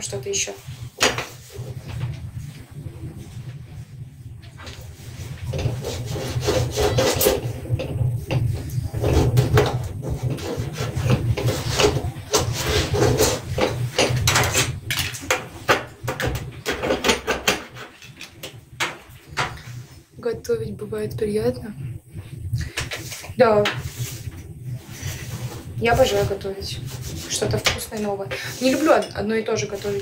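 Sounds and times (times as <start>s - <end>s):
hand wiping kitchen surface: 22.2s - 30.0s.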